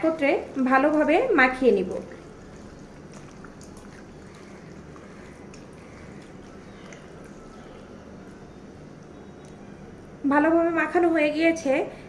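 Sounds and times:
wet squelching of raw meat: 0:00.0 - 0:09.6
steady low hum: 0:00.0 - 0:12.0.

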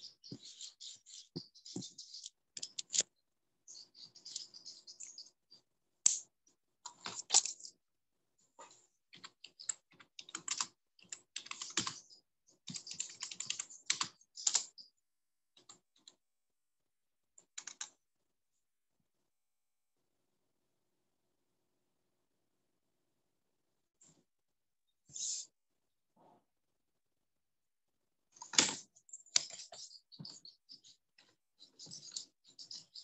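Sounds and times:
computer keyboard typing: 0:09.1 - 0:14.8, 0:17.4 - 0:17.9.

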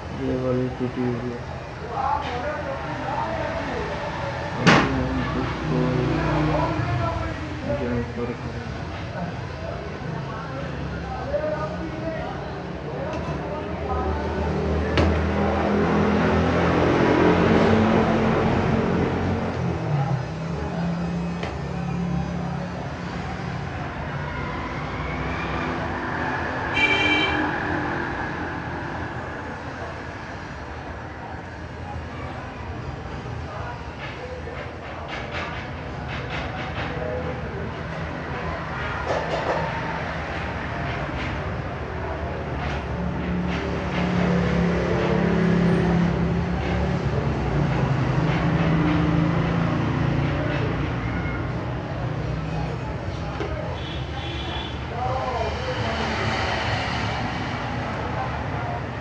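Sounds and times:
road traffic noise: 0:00.0 - 0:59.0
car horn toot: 0:26.7 - 0:27.5.

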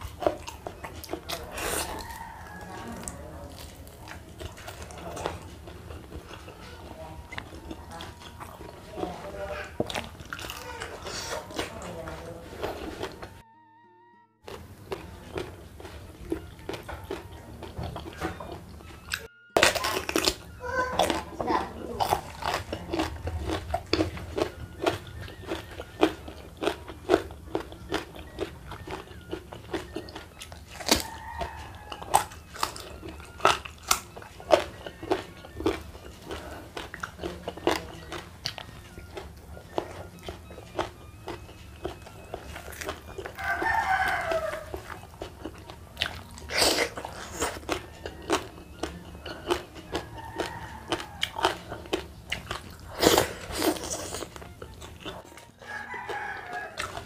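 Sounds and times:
crunching raw vegetables: 0:00.0 - 0:13.4, 0:14.4 - 0:57.0
rooster crowing: 0:01.2 - 0:03.8, 0:30.7 - 0:33.6, 0:43.1 - 0:45.1, 0:47.2 - 0:48.6, 0:49.8 - 0:52.0, 0:55.6 - 0:57.0.

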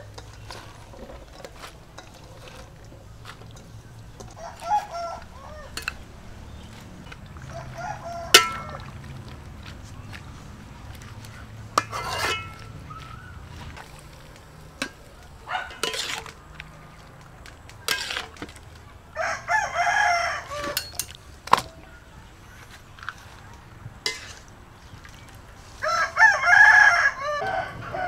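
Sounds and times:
ladle knocking metal wok: 0:00.0 - 0:07.5, 0:08.2 - 0:09.0, 0:11.2 - 0:12.8, 0:14.8 - 0:16.4, 0:17.8 - 0:18.8, 0:20.6 - 0:21.7, 0:24.0 - 0:24.5
chickens clucking: 0:00.0 - 0:23.6
rooster crowing: 0:04.3 - 0:05.8, 0:07.4 - 0:08.9, 0:19.2 - 0:20.9, 0:25.8 - 0:28.0.

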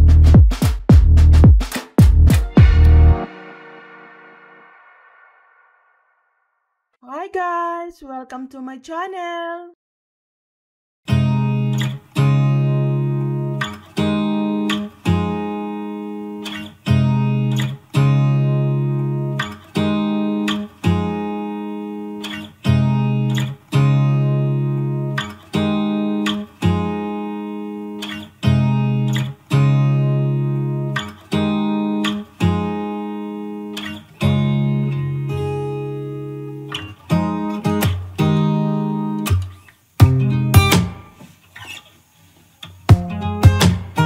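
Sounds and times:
acoustic guitar strumming chords: 0:02.2 - 0:05.0, 0:11.1 - 0:41.4, 0:42.8 - 0:44.0.

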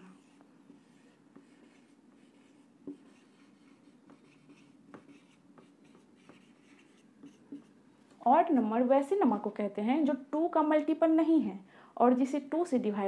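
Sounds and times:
marker writing on whiteboard: 0:00.0 - 0:07.8
low steady hum: 0:00.0 - 0:13.0.

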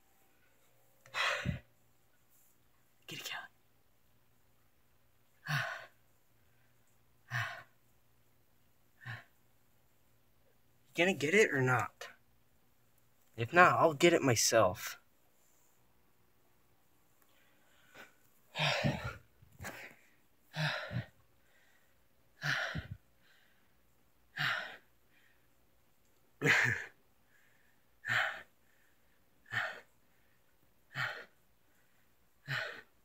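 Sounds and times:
person breathing heavily: 0:01.1 - 0:01.7, 0:05.4 - 0:06.0, 0:07.2 - 0:07.8, 0:17.3 - 0:25.6, 0:26.4 - 0:33.0.

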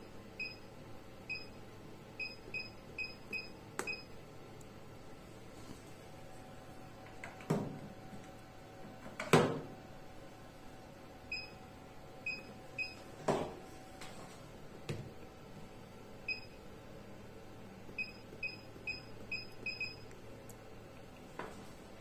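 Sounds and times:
faint steady hum: 0:00.0 - 0:22.0
touchscreen beeps: 0:18.0 - 0:20.0.

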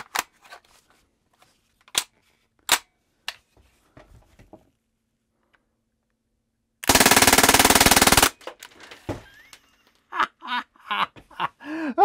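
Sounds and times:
air rifle full-auto burst: 0:06.8 - 0:08.5.

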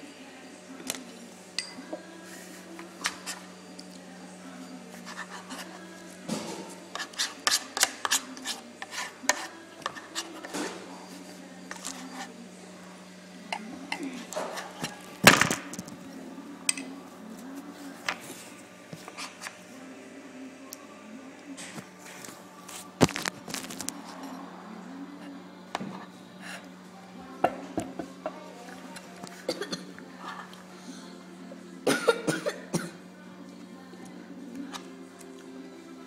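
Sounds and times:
steady low hum: 0:00.0 - 0:36.0
spoon scraping a bowl: 0:04.9 - 0:05.8, 0:06.6 - 0:12.3, 0:19.0 - 0:19.6.

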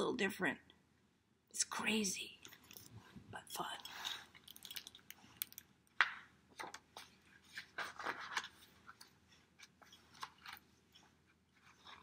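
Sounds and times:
book pages turning: 0:06.6 - 0:12.0.

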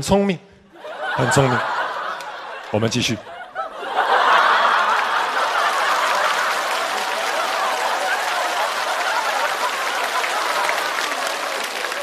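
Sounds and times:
audience laughing: 0:00.7 - 0:12.0
audience applauding: 0:03.9 - 0:12.0.

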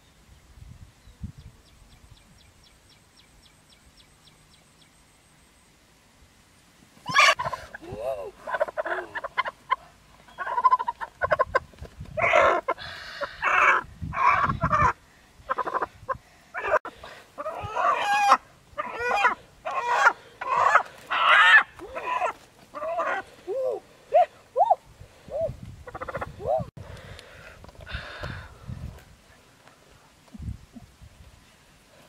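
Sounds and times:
high chicken cries: 0:07.1 - 0:07.8, 0:08.4 - 0:11.6, 0:12.2 - 0:23.3
chicken squawking and clucking: 0:07.1 - 0:23.3, 0:25.4 - 0:26.7.

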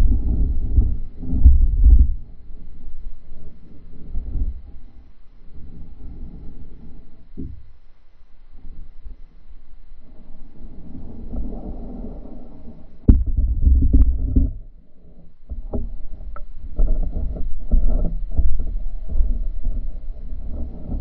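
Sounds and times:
muffled underwater water sloshing: 0:10.9 - 0:14.7
sharp knocks: 0:13.1 - 0:14.6.

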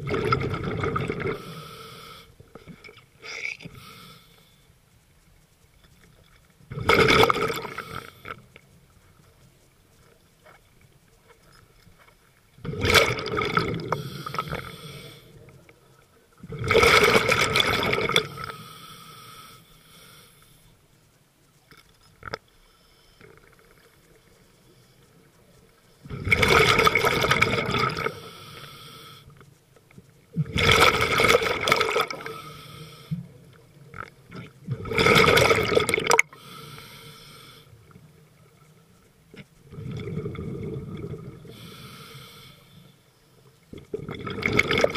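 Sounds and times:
exhaled bubbles rushing: 0:00.0 - 0:01.4, 0:06.7 - 0:07.8, 0:12.6 - 0:14.0, 0:16.5 - 0:18.3, 0:26.1 - 0:28.1, 0:30.4 - 0:32.3, 0:34.4 - 0:36.2, 0:43.9 - 0:44.9
regulator hiss: 0:01.3 - 0:05.8, 0:07.6 - 0:10.4, 0:13.8 - 0:16.3, 0:18.1 - 0:21.7, 0:28.0 - 0:30.2, 0:32.0 - 0:33.8, 0:36.3 - 0:39.1, 0:41.4 - 0:43.6.

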